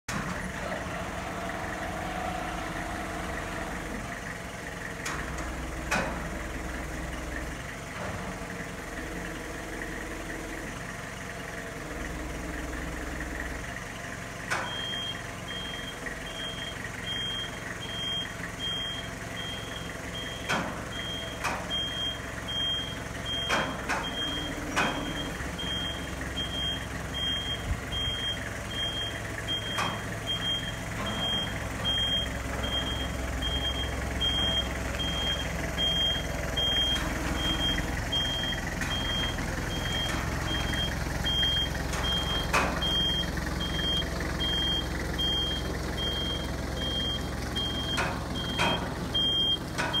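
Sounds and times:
forklift engine hum: 0.1s - 50.0s
reversing alarm beeps: 14.6s - 50.0s.

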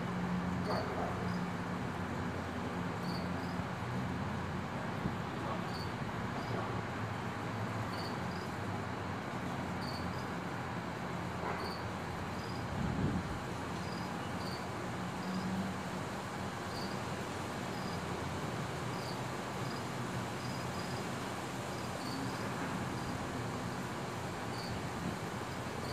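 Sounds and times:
crickets chirping: 0.6s - 1.5s, 3.0s - 4.5s, 5.6s - 6.6s, 7.8s - 25.9s
steady background hiss: 7.0s - 25.9s.

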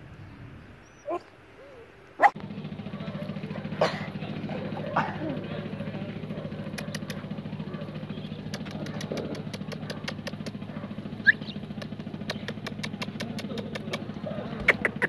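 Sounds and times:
small engine idling: 2.2s - 15.0s
sharp clicks: 6.7s - 7.2s, 8.4s - 10.6s, 11.5s - 15.0s.

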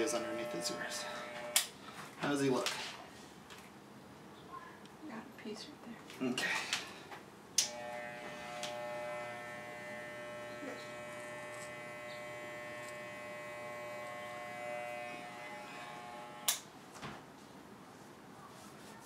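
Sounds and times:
electric clipper humming: 0.0s - 1.7s, 7.6s - 16.7s.

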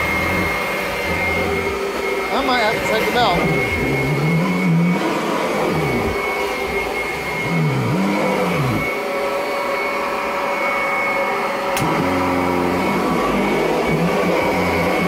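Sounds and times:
vacuum cleaner motor whine: 0.0s - 15.0s.

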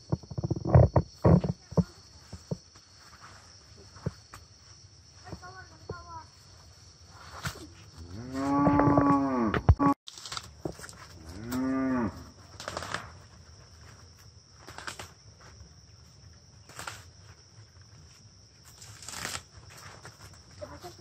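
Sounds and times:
insects humming: 0.0s - 21.0s
leafy plants being stripped: 10.1s - 11.7s, 12.4s - 15.2s, 16.6s - 17.4s, 18.6s - 21.0s.

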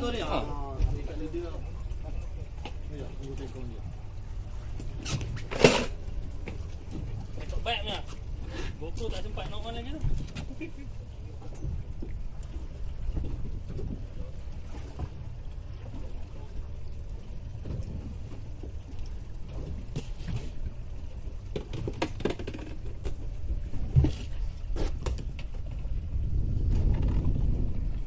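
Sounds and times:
water splashing against boat hull: 0.0s - 28.0s
wind rumbling on microphone: 0.0s - 28.0s.

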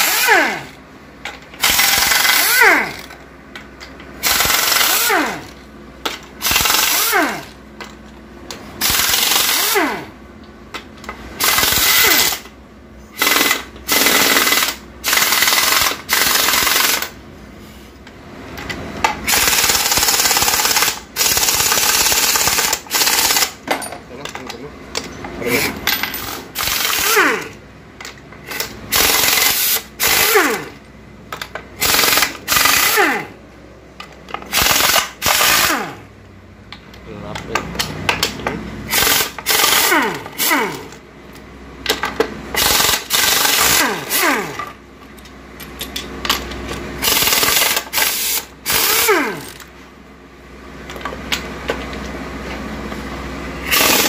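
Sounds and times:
impact wrench hammering: 0.0s - 3.2s, 3.8s - 10.1s, 13.1s - 17.2s, 25.0s - 33.3s, 37.5s - 41.0s, 53.6s - 54.0s.

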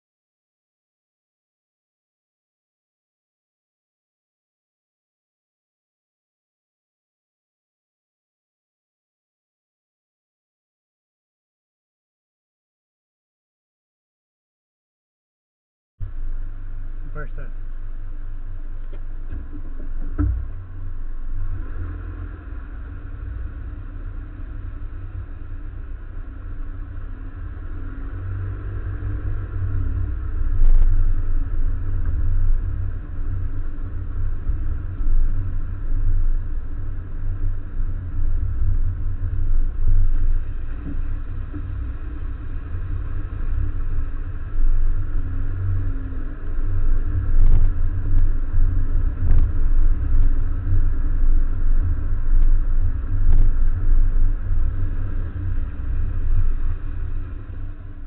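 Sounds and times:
wind buffeting microphone: 18.4s - 58.0s.

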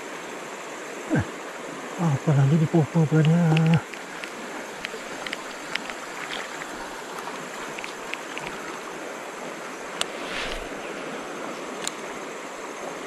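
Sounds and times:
river rushing over rapids: 0.0s - 13.0s
sharp tick: 3.2s - 6.0s
faint clicks: 3.2s - 8.8s, 11.8s - 12.1s.

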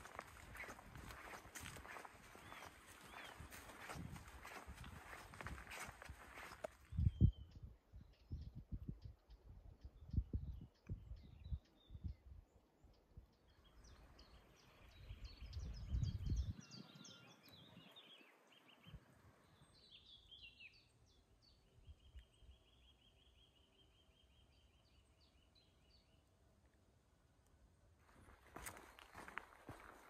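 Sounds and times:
songbirds singing: 0.0s - 26.7s.

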